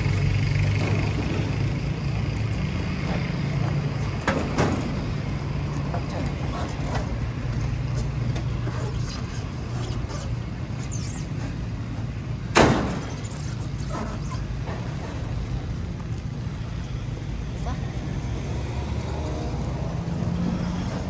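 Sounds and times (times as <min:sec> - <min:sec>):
vehicle engine rumble: 0:00.0 - 0:21.0
tailgate slamming shut: 0:04.1 - 0:05.4, 0:12.5 - 0:14.2.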